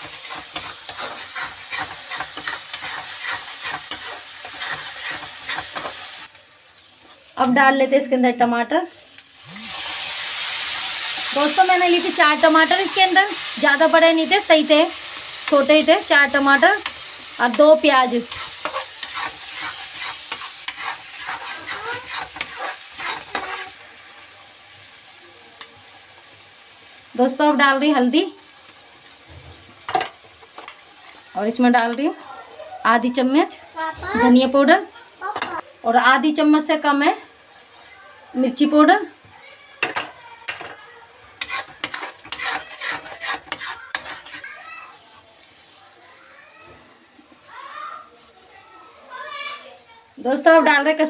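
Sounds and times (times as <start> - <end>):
steel spoon scraping a pan: 0.0 - 6.4, 9.7 - 23.8, 41.4 - 46.2
food sizzling in oil: 0.0 - 51.0.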